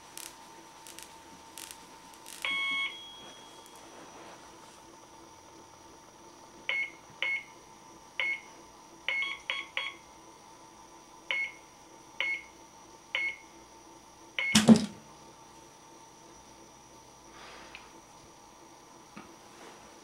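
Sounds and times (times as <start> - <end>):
microwave keypad beeps: 2.4 - 3.8, 6.7 - 7.5, 8.2 - 8.5, 9.1 - 10.0, 12.2 - 12.5, 13.2 - 13.4, 14.4 - 14.7
microwave oven clunk: 14.4 - 15.0.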